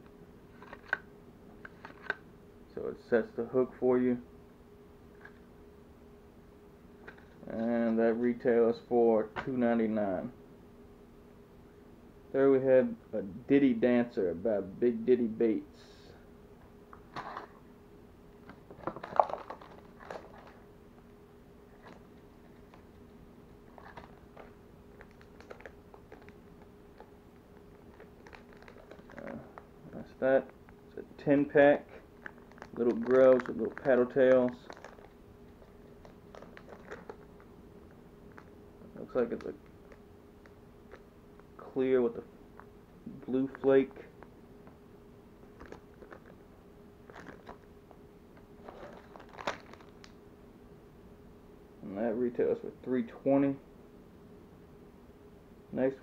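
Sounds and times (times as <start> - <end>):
plastic bag crinkling and clicking: 18.4 - 20.6, 23.7 - 29.7, 32.2 - 41.5, 45.6 - 46.4, 47.0 - 50.2.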